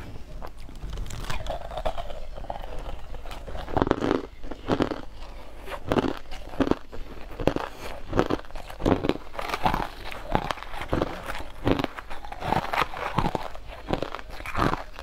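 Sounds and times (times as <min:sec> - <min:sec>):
crushed ice crunching: 0:05.8 - 0:15.0.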